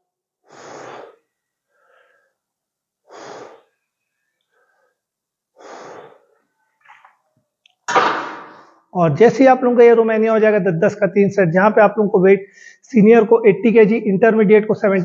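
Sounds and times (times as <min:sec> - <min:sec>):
man breathing forcefully: 0:00.5 - 0:02.3, 0:03.1 - 0:03.7, 0:05.6 - 0:06.3.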